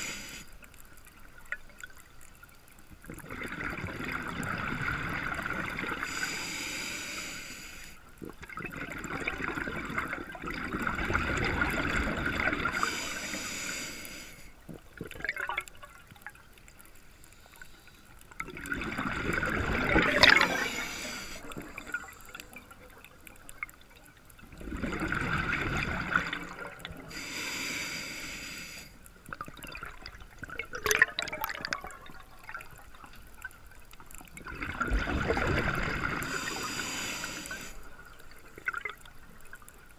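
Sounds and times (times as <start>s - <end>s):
diver breathing through regulator: 0.0s - 0.6s, 6.0s - 8.0s, 12.7s - 14.6s, 20.2s - 22.5s, 27.0s - 29.1s, 36.2s - 38.0s
gurgling exhaled bubbles: 3.0s - 6.2s, 8.2s - 12.9s, 14.7s - 16.0s, 18.4s - 22.8s, 24.4s - 27.2s, 29.3s - 33.1s, 34.2s - 39.6s
faint clicks: 14.0s - 18.8s.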